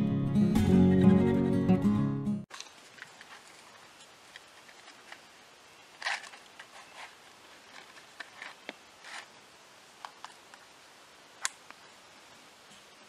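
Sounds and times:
hands handling kindling: 2.5s - 9.4s.

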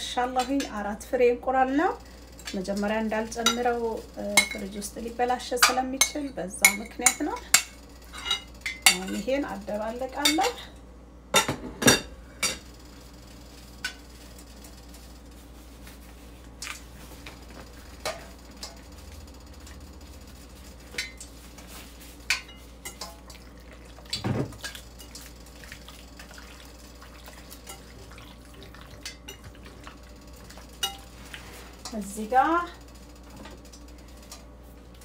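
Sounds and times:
steady low hum: 0.0s - 35.0s
dishes and utensils clinking: 3.4s - 3.8s, 5.6s - 9.3s, 10.2s - 10.8s, 11.4s - 12.7s, 22.2s - 23.5s, 27.3s - 32.0s.

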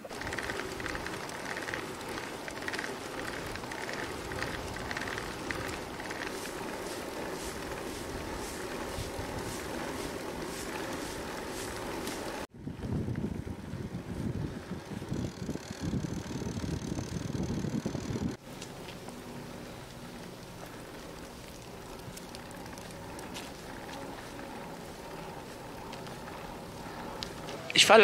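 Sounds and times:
wind buffeting microphone: 0.0s - 18.4s
bicycle rolling on asphalt: 0.0s - 28.0s
faint ticking: 15.2s - 28.0s.

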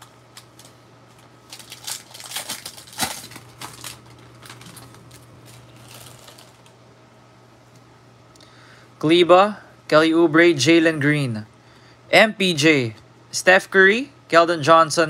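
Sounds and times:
foil wrapper crinkling: 0.0s - 6.8s
trading cards clicking and flicking: 0.0s - 6.8s
faint steady hum: 0.0s - 15.0s.

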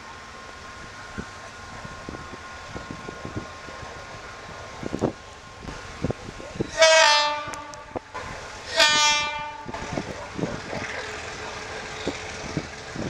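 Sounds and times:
approaching train noise: 0.0s - 13.0s
locomotive horn blasts: 6.7s - 8.1s, 8.7s - 9.8s.

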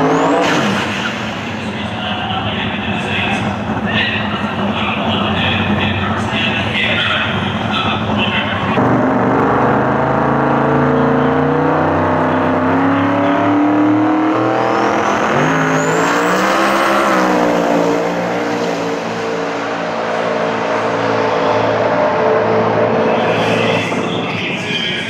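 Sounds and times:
race car engine revving and launching: 0.0s - 2.9s, 8.7s - 25.0s.

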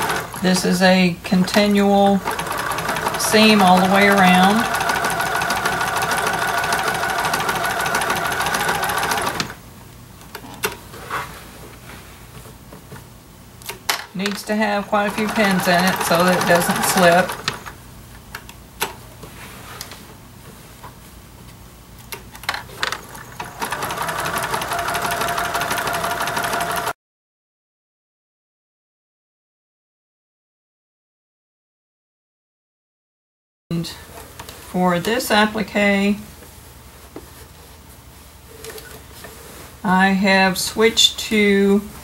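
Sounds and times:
sewing machine stitching: 0.0s - 0.5s, 1.3s - 9.6s, 14.8s - 17.7s, 22.9s - 27.0s.

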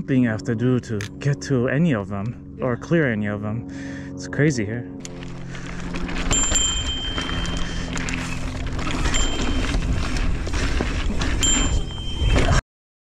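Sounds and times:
tyres rolling on packed dirt: 5.0s - 12.6s
bike rattling and knocking: 5.1s - 12.6s.

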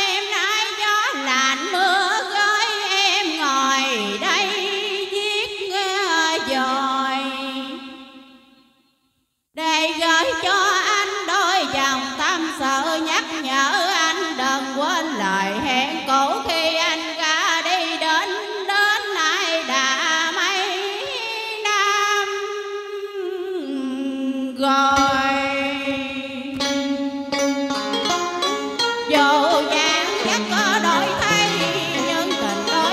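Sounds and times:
woman singing into a microphone: 0.0s - 8.0s, 9.6s - 26.8s, 29.0s - 32.9s
karaoke backing track: 27.6s - 32.9s.

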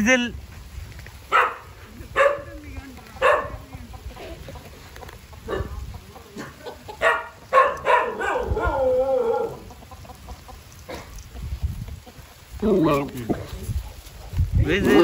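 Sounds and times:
rooster crowing: 7.9s - 9.7s.

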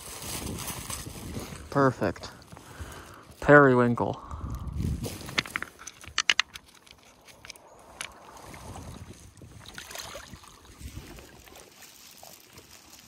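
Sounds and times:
seawater washing among rocks: 8.0s - 13.0s.

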